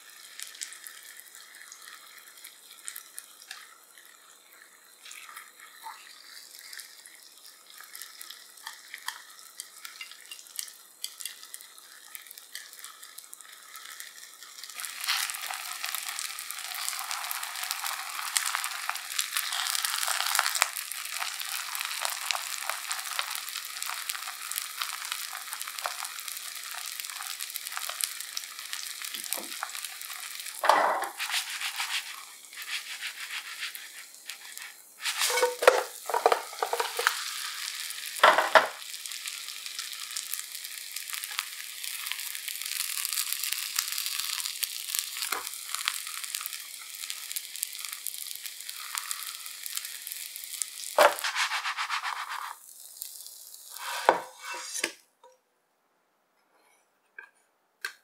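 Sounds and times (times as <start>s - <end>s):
batter sizzling in oil: 0.0s - 55.0s
pan knocks and scrapes: 35.1s - 37.1s, 51.0s - 52.1s, 53.8s - 54.9s.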